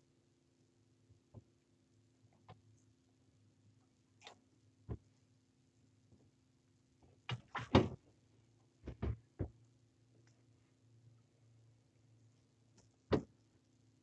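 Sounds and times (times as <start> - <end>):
knocks and clatter on deck: 8.8 - 9.6.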